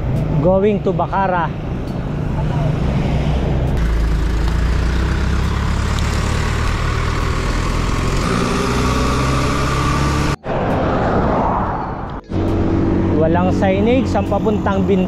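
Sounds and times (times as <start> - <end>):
vehicle engine running: 0.0 - 10.4
wind rushing over microphone: 10.4 - 14.3.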